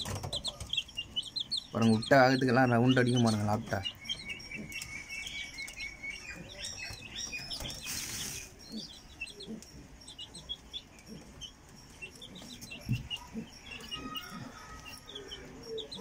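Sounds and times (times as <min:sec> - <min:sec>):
chicks peeping: 0:00.0 - 0:16.0
rustling: 0:07.5 - 0:08.8.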